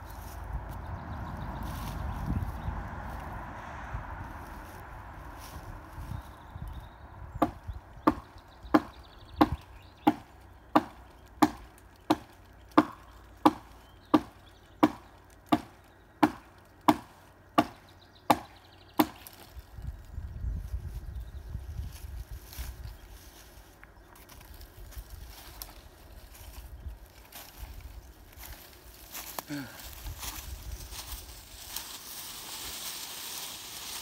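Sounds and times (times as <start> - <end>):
hatchet chopping wood: 7.4 - 19.4.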